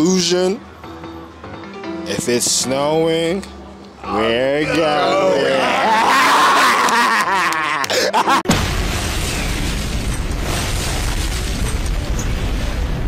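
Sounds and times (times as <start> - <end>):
men laughing: 5.0 - 8.5
loud boom with low rumble: 8.5 - 13.0.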